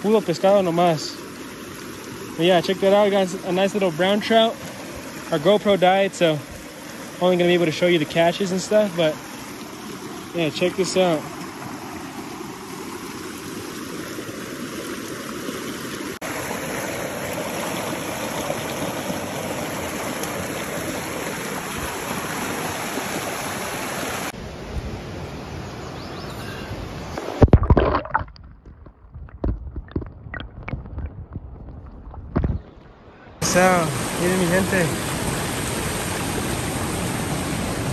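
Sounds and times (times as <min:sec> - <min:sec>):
water rushing over rocks: 0:00.0 - 0:24.4, 0:27.1 - 0:32.6, 0:33.4 - 0:37.9
underwater knocks: 0:27.4 - 0:32.6.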